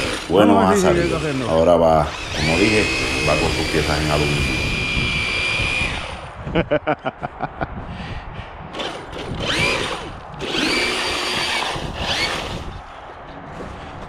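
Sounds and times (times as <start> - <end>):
electric toy truck motor whining: 0.0 - 6.4, 8.7 - 12.8.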